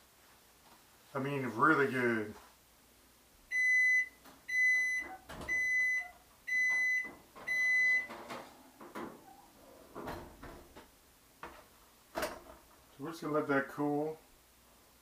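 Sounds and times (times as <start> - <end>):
oven timer beeping: 3.5 - 8.1.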